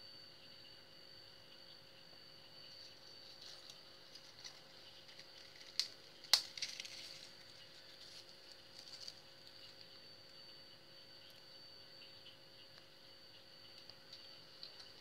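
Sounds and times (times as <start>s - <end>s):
small ticks of handled pieces: 2.8s - 9.9s
cracker crumbling: 3.4s - 9.8s
crackers snapping: 5.2s - 7.3s.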